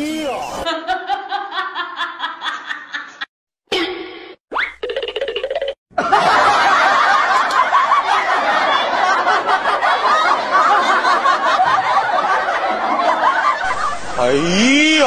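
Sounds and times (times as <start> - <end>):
laugh track: 0.4 - 3.3, 5.9 - 15.0.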